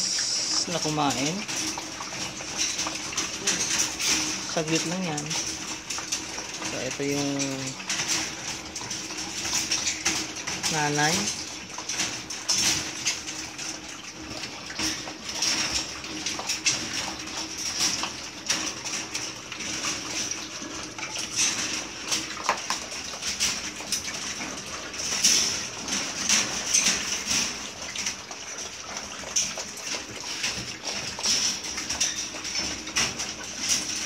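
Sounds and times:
puppies lapping milk from metal bowl: 0.0 - 34.0.

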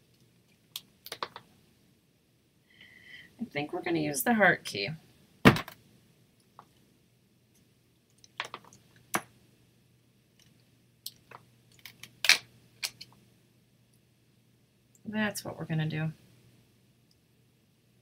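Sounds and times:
craft pieces clicking on tabletop: 0.8 - 1.5, 8.2 - 9.3.

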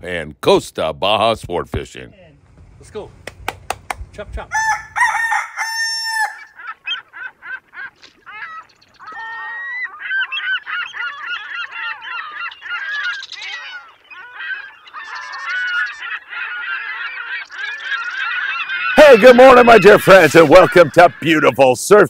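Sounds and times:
flock of birds calling: 4.5 - 22.0.

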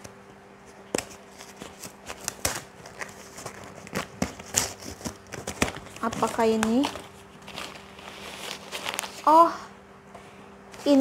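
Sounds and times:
cardboard box rustling and crackling: 1.0 - 9.3.

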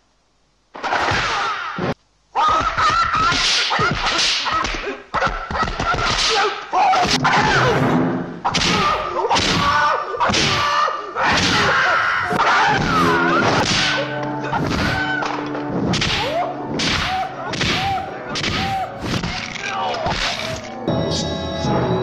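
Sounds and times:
slapping punch and kick impacts: 8.5 - 10.7, 12.8 - 14.0, 15.8 - 19.4.

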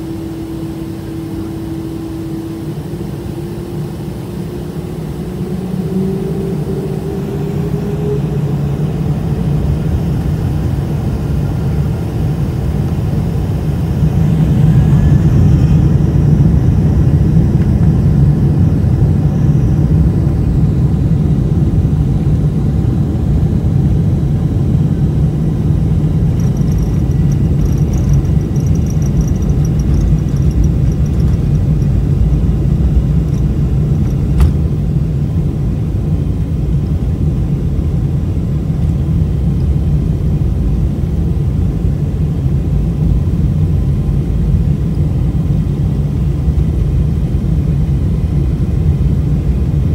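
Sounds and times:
jet engines spooling up: 0.0 - 37.6
loud steady engine rumble: 0.0 - 49.9.

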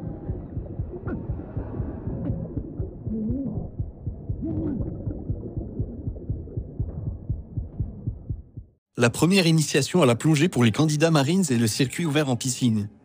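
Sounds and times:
muffled underwater rumble: 0.0 - 8.8.

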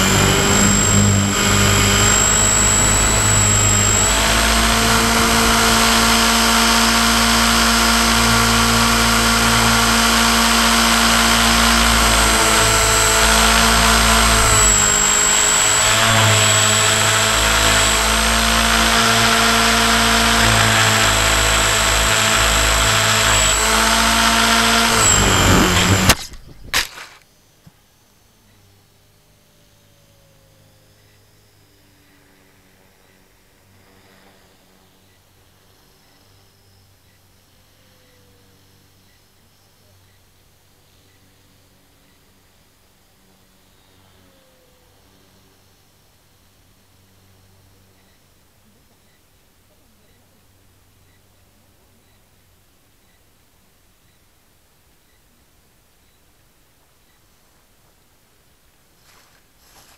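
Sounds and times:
model airplane motor and propeller: 0.0 - 39.0
plane crashing into grass: 25.2 - 27.2.

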